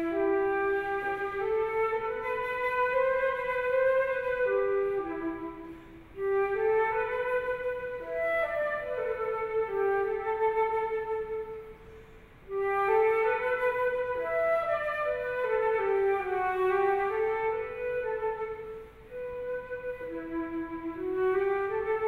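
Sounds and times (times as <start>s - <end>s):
solo flute melody: 0.0s - 22.0s
flautist breath: 5.6s - 6.2s, 11.6s - 12.5s.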